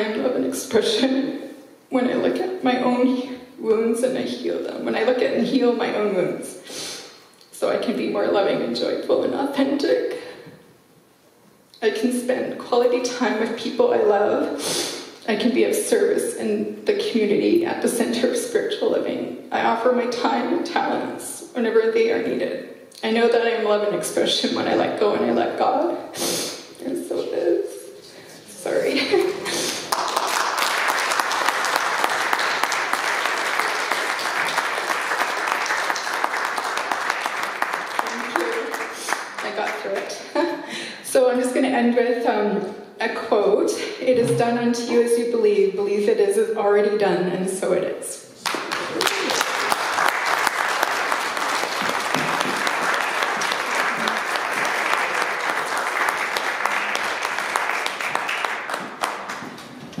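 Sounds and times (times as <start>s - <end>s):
congregation applauding: 29.4s - 39.6s, 48.4s - 60.0s.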